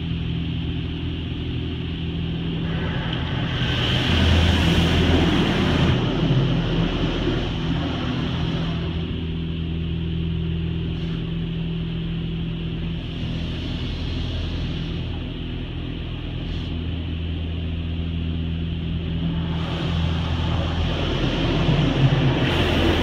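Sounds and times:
constant low hum: 0:00.0 - 0:23.0
muffled water spray hissing: 0:02.5 - 0:09.4, 0:10.7 - 0:12.0, 0:12.6 - 0:17.6, 0:18.9 - 0:23.0.

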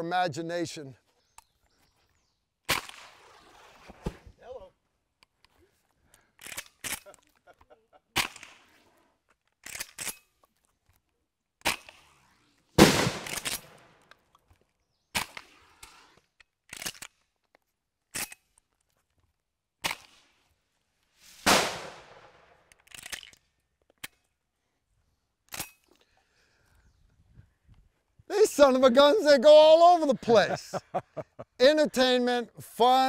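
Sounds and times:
shotgun bangs: 0:12.8 - 0:13.9, 0:21.4 - 0:22.5
crackers bursting: 0:12.8 - 0:14.0, 0:21.4 - 0:22.6.

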